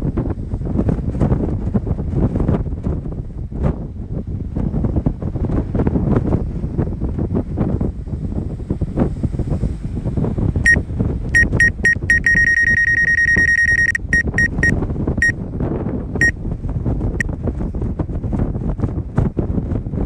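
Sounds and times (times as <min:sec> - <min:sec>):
wind buffeting microphone: 0:00.0 - 0:12.2, 0:14.0 - 0:20.0
high electronic warning beeps: 0:11.4 - 0:15.4.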